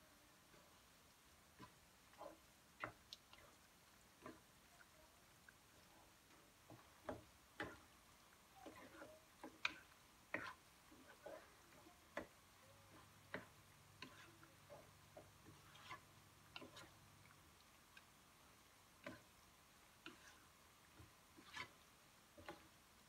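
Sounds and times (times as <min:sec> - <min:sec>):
spatula clicking against pan: 0:12.1 - 0:17.0.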